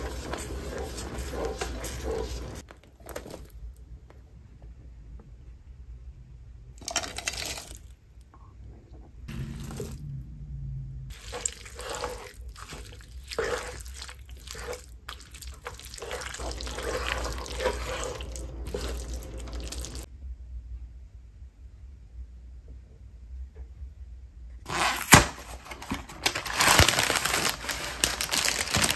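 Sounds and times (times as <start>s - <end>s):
wooden spoon stirring wet mixture: 0.0s - 3.5s, 11.1s - 20.1s
plastic bag crinkling: 26.0s - 28.9s.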